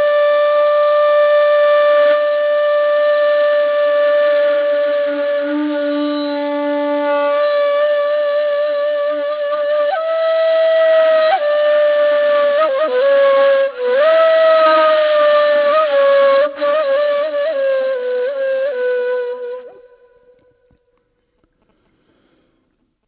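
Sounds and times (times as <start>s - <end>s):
solo flute melody: 0.0s - 20.9s
breathy hiss: 21.6s - 22.8s.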